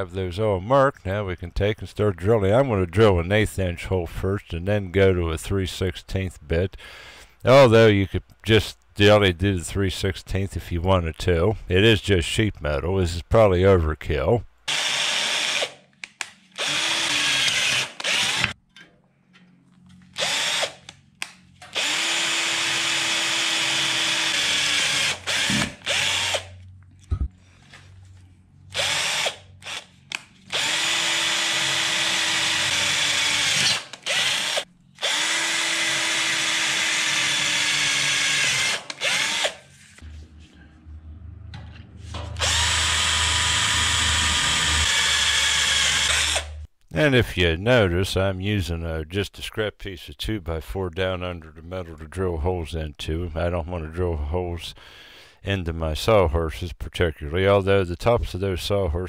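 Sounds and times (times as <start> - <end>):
electric drill boring sheet metal: 14.7 - 15.8, 16.6 - 18.6, 20.2 - 20.8, 21.7 - 26.6, 28.7 - 29.9, 30.5 - 39.6, 42.2 - 46.6.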